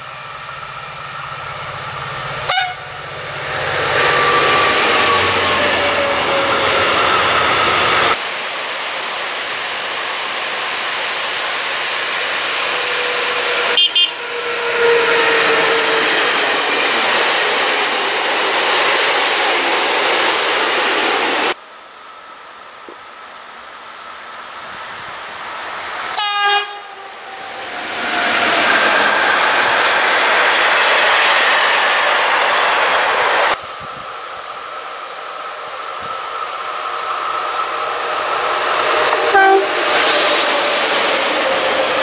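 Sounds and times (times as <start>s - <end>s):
train wheels rushing on rails: 0.0s - 21.6s, 24.0s - 42.0s
locomotive horn: 2.4s - 3.0s, 13.1s - 16.1s, 26.2s - 27.3s, 39.0s - 39.9s.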